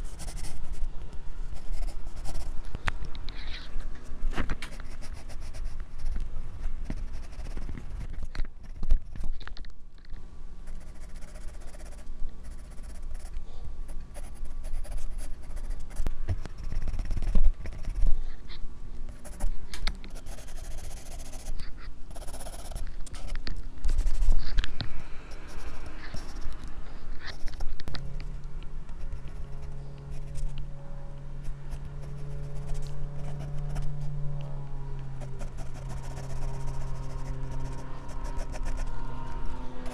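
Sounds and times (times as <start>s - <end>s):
pencil scratching on paper: 0.0s - 0.9s, 1.6s - 2.6s, 4.7s - 9.3s, 10.7s - 18.2s, 19.1s - 19.5s, 20.1s - 24.4s, 25.4s - 26.6s, 27.2s - 27.8s, 29.0s - 30.6s, 31.4s - 34.1s, 35.2s - 38.9s.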